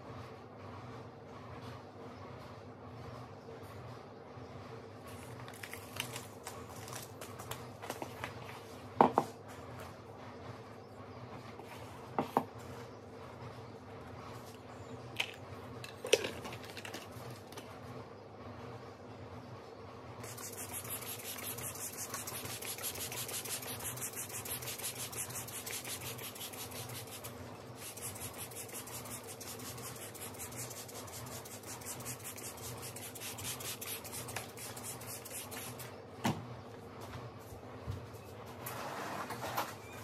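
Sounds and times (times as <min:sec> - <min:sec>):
spray bottle misting water: 0:20.2 - 0:35.8.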